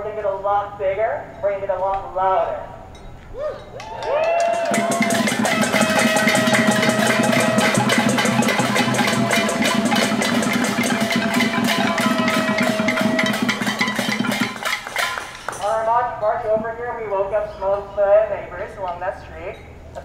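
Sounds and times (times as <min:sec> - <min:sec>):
banging on drums and pots: 0:04.2 - 0:16.0
noisemakers holding steady tones: 0:04.6 - 0:19.5.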